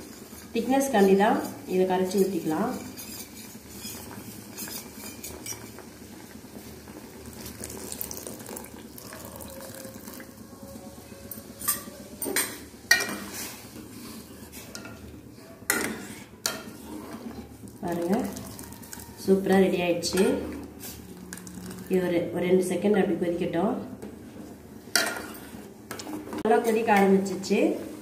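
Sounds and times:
soup bubbling: 0:06.8 - 0:10.4.

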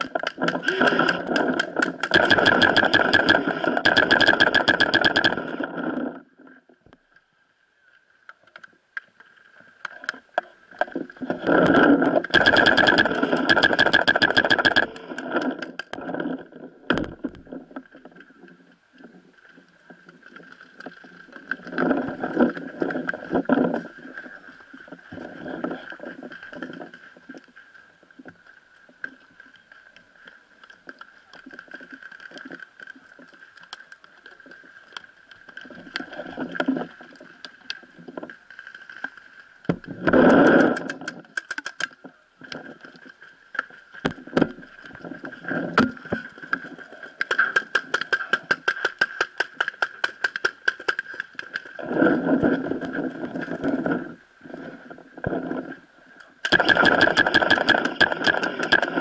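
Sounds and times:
sharp clicks: 0:00.0 - 0:05.6, 0:12.2 - 0:16.0, 0:40.1 - 0:42.0, 0:47.2 - 0:51.7, 0:56.4 - 0:59.0.

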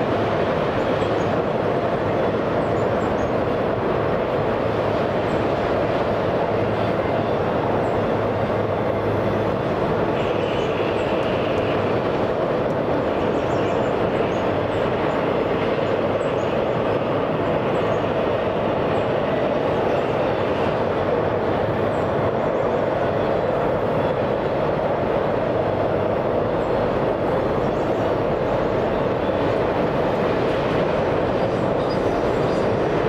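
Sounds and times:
train wheels rumbling on rail: 0:00.0 - 0:33.0.

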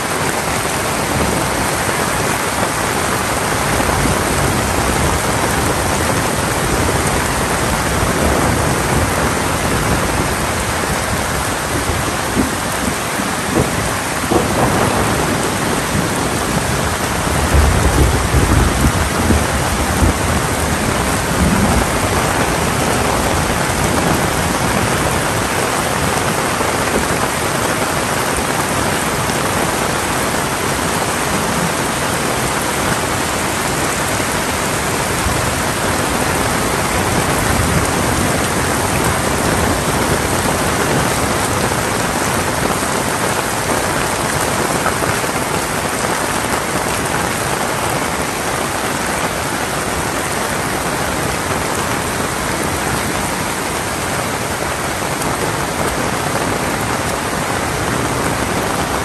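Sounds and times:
heavy rain drumming: 0:00.0 - 0:59.0
low rumble of thunder: 0:03.6 - 0:25.4.

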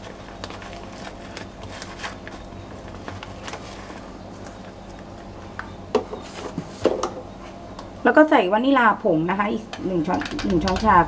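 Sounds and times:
plastic bag rustling: 0:00.0 - 0:05.3
low steady hum: 0:00.0 - 0:11.0.

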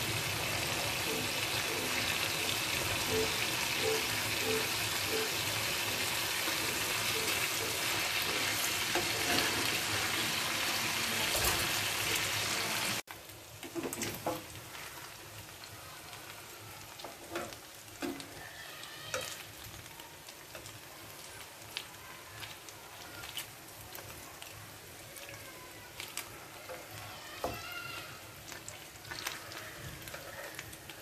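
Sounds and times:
chicken sizzling in a roasting pan: 0:00.0 - 0:31.0
metal tongs turning food: 0:01.0 - 0:10.6, 0:16.9 - 0:31.0.

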